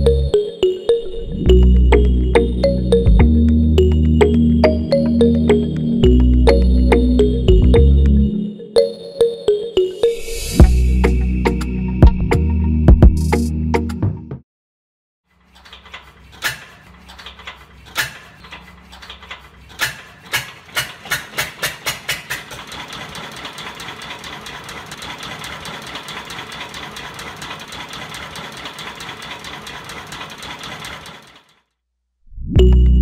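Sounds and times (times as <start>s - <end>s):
fast ticking whir: 15.6s - 31.7s.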